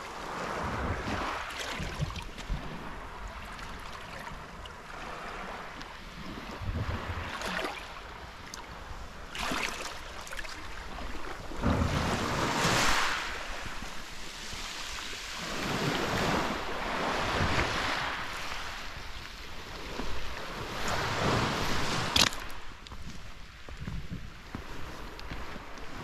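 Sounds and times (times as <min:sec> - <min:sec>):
waves washing over pebble beach: 0:00.2 - 0:03.2, 0:09.1 - 0:22.7.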